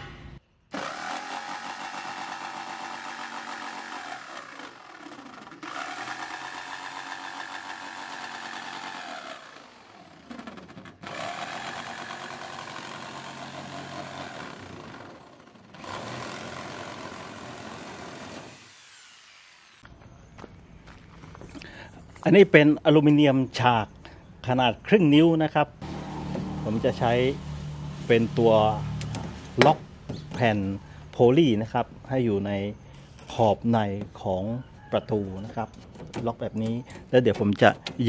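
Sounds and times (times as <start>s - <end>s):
electric jigsaw cutting plastic: 0.7s - 19.9s.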